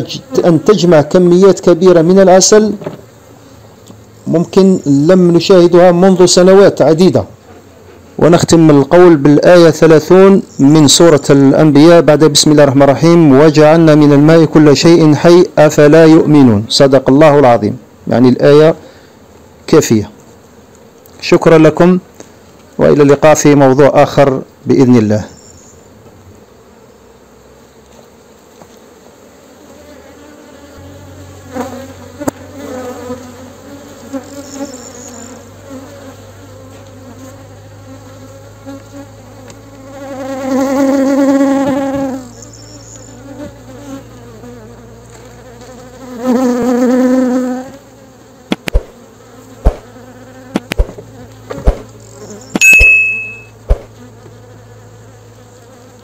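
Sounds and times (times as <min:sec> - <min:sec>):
honeybees buzzing: 0:00.0 - 0:56.0
knocks on wooden hive covers: 0:02.7 - 0:03.1, 0:41.6 - 0:42.2, 0:48.5 - 0:49.0, 0:49.6 - 0:51.9, 0:53.6 - 0:54.0
bee flying past microphone: 0:25.9 - 0:56.0.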